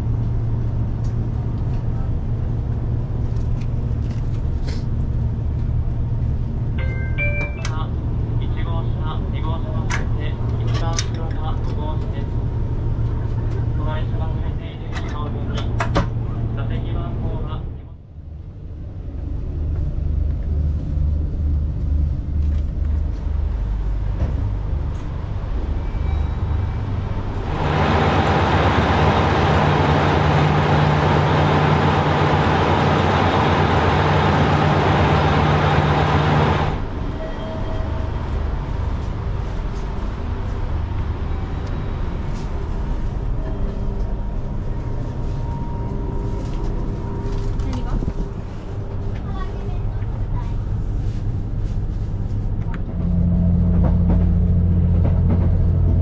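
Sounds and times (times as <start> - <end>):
diesel railcar engine idling: 15.4 - 56.0
loud rush of passing railcar: 23.0 - 49.3, 50.2 - 56.0.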